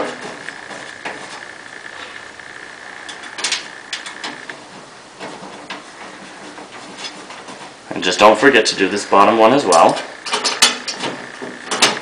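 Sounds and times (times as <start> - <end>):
faint high whine: 0.0 - 6.6.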